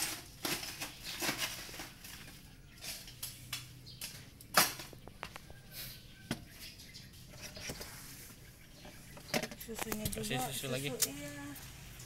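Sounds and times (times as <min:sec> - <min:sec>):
ice scraping and rattling in cooler: 0:00.0 - 0:05.4.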